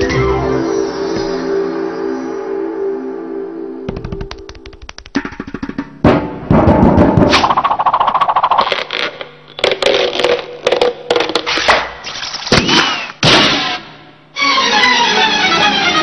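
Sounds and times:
orchestral string music: 14.3 - 16.0.

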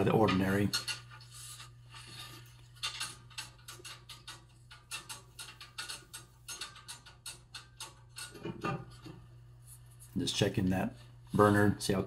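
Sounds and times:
low steady hum: 0.0 - 12.0
clicks and taps on sheet metal: 1.9 - 9.2.

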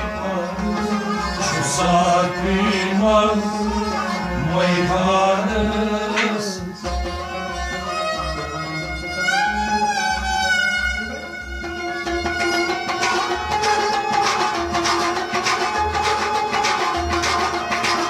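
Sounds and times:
person singing devotional song: 1.4 - 6.8.

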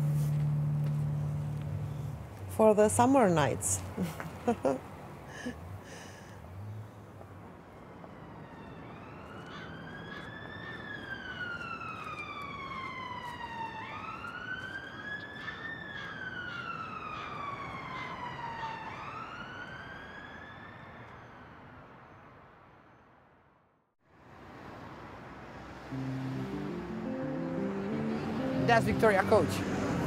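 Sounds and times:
emergency siren wailing: 7.4 - 22.0, 25.8 - 30.0.

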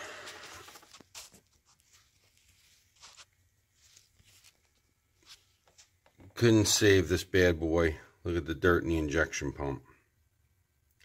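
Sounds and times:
brushing sounds: 0.0 - 6.0.

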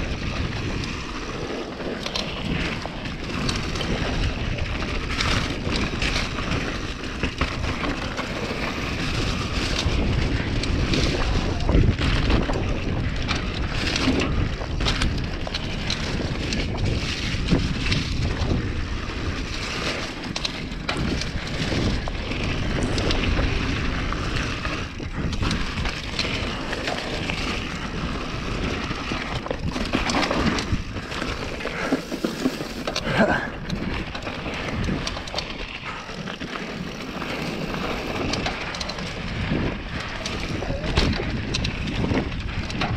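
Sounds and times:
bike clicks and rattles: 0.0 - 42.9
mountain bike rolling on dirt: 0.0 - 42.9
wind rumbling on microphone: 0.0 - 42.9.

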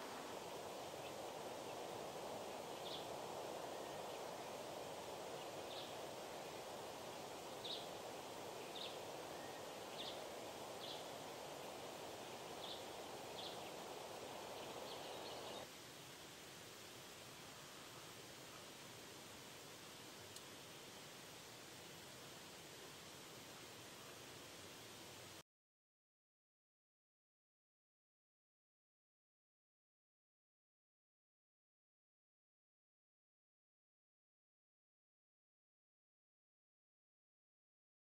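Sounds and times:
bird chirping: 0.0 - 15.6
faint even hiss: 0.0 - 25.4
wind rustling leaves: 0.0 - 25.4.

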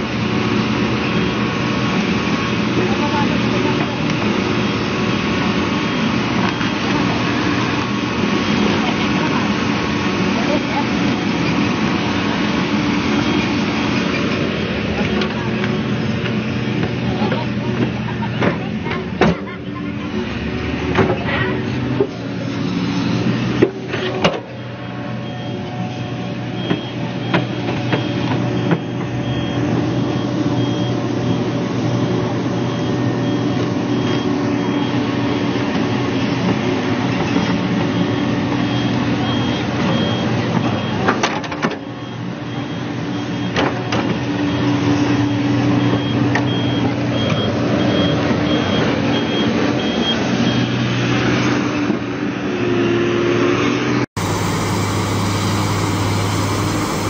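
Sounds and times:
excavator diesel engine running: 0.0 - 50.9, 54.2 - 57.0
travel alarm beeping: 24.6 - 36.3, 37.8 - 41.1, 41.8 - 43.6, 44.3 - 50.9, 54.2 - 57.0.

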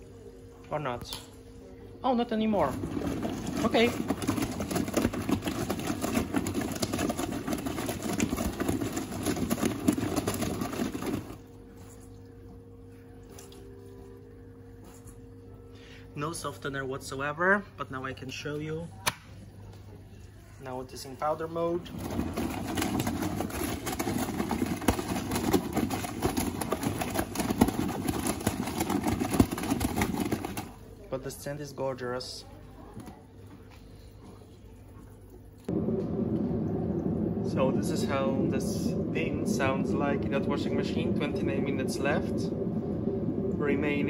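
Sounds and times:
faint machine hum: 0.0 - 44.0
washing machine drum rattling: 2.5 - 11.4, 21.4 - 30.8.

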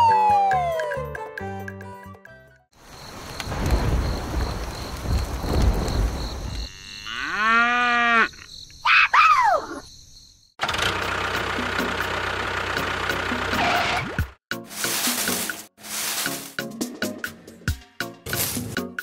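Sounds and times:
cow mooing: 6.7 - 8.4.

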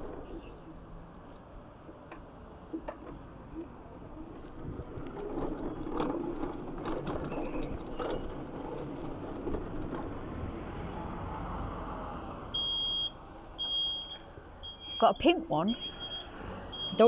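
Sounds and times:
scooter motor and wheels rumbling: 0.0 - 15.0
high electronic beep: 12.6 - 17.0.

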